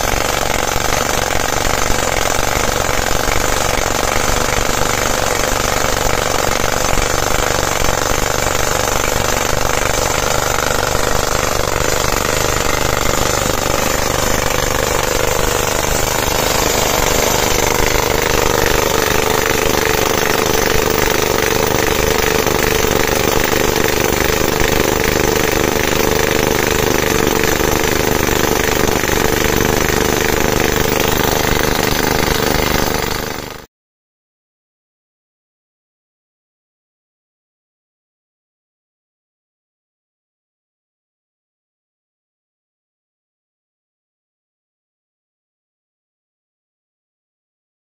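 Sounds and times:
pneumatic hammer drilling rock: 0:00.0 - 0:33.7.

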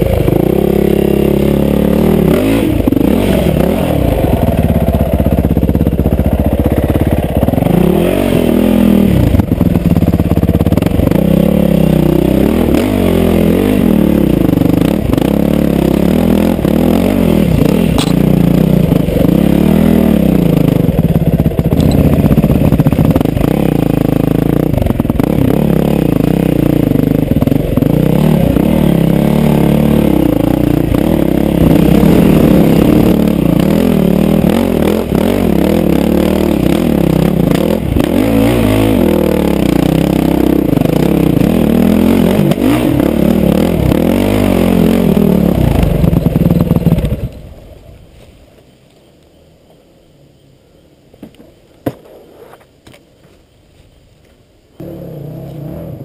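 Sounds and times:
dirt bike engine revving: 0:00.0 - 0:47.3, 0:54.8 - 0:56.0
bike knocking on rough ground: 0:18.0 - 0:18.3, 0:51.2 - 0:53.4.

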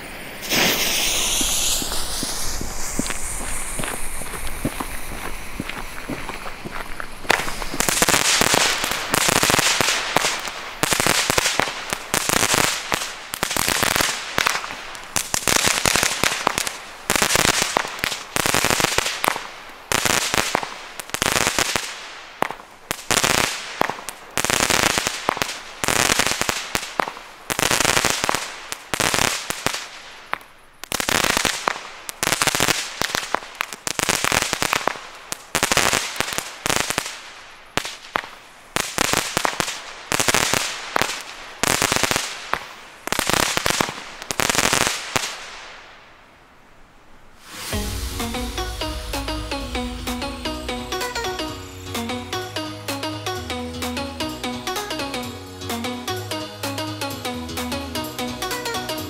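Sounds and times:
firework battery shots crackling: 0:00.0 - 0:05.8, 0:07.1 - 0:46.1.

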